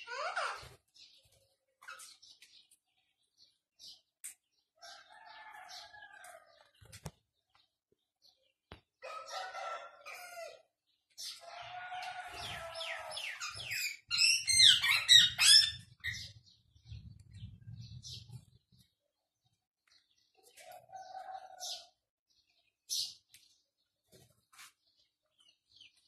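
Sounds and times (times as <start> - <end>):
cockatiel calling: 13.1 - 16.2.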